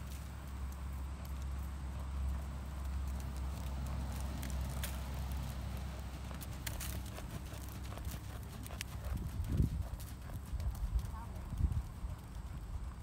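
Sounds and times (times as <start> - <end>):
steady low rumble: 0.0 - 13.0
horse hoofbeats on sand: 3.1 - 13.0.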